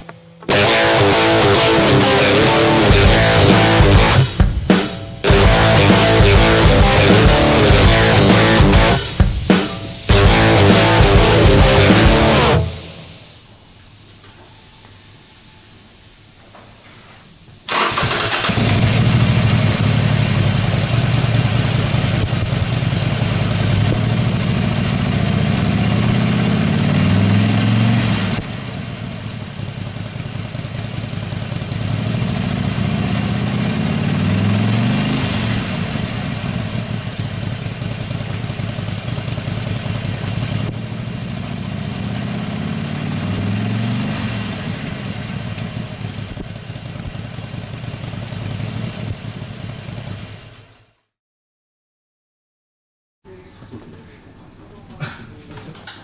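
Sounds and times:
motorcycle engine idling: 2.9 - 12.8, 17.7 - 34.7, 35.5 - 43.6, 44.4 - 51.0.

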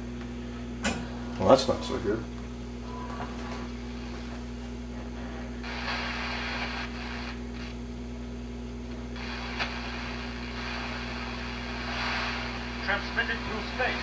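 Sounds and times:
television low hum: 0.0 - 14.0
static hiss: 5.2 - 8.0, 8.9 - 14.0.

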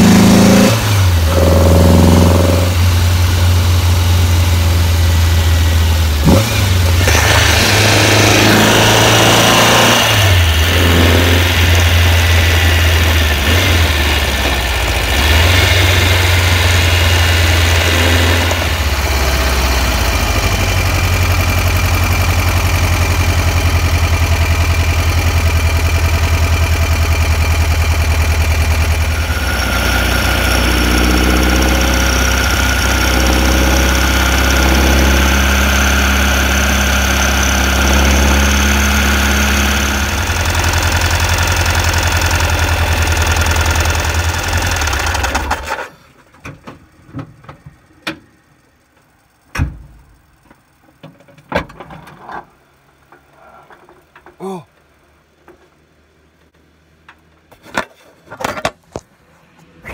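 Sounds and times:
air-cooled car engine running: 0.0 - 45.8.

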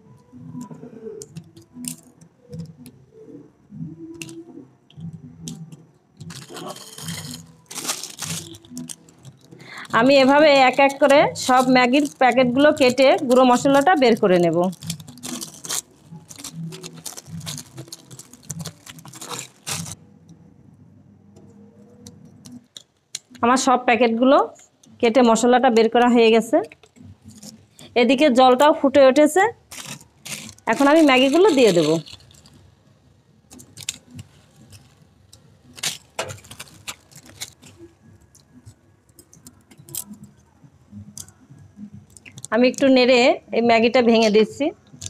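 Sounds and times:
plastic wrapper crinkling: 4.2 - 4.5, 5.4 - 20.0, 24.9 - 28.7, 29.5 - 40.3, 42.1 - 42.9.

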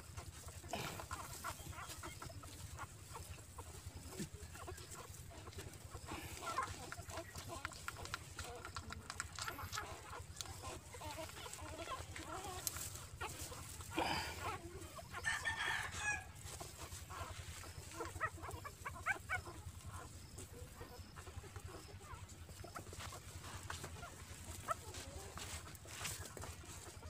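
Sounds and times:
chickens clucking: 0.0 - 27.0
rooster crowing: 15.2 - 16.4.

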